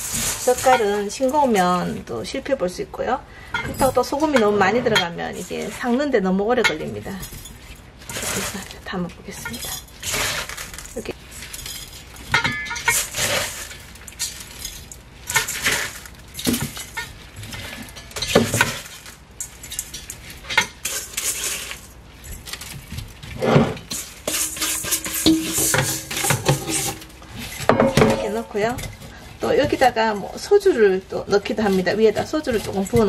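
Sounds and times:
salt grains scraping and rattling: 0:09.5 - 0:33.0.

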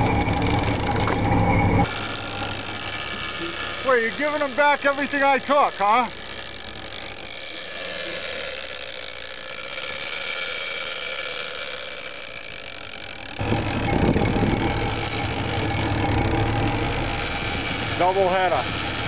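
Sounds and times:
fishing reel drag whining: 0:00.0 - 0:01.2, 0:01.8 - 0:19.0
low rumble: 0:13.4 - 0:18.0.

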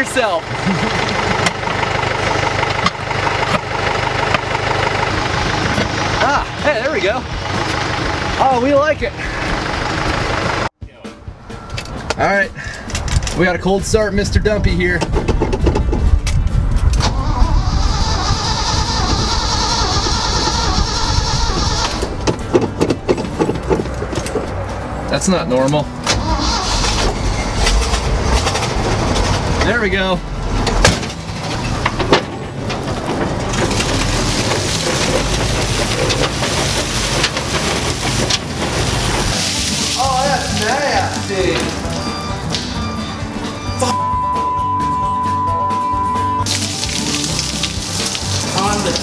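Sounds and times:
truck engine cranking and running: 0:00.0 - 0:10.7, 0:15.0 - 0:45.3, 0:45.9 - 0:49.0
water gushing and splashing: 0:33.4 - 0:41.4, 0:46.5 - 0:49.0.

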